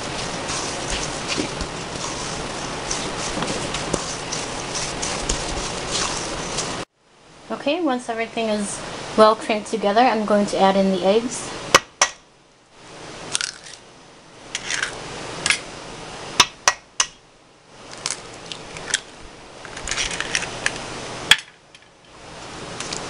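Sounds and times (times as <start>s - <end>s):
handling rustling: 0.0s - 6.8s.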